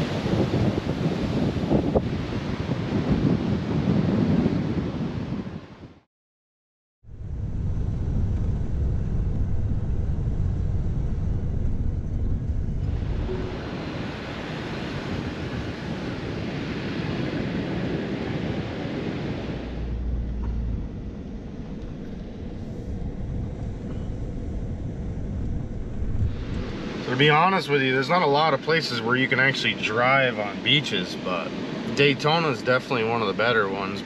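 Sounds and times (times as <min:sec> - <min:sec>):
ocean surf breaking: 0:00.0 - 0:05.6, 0:12.8 - 0:23.2, 0:24.3 - 0:34.0
wind rumbling on microphone: 0:00.0 - 0:06.0, 0:07.1 - 0:34.0.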